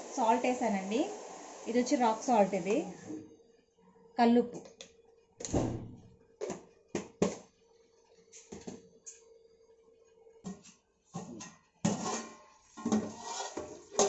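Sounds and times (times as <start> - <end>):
metal pot lid scraping: 11.8 - 14.0.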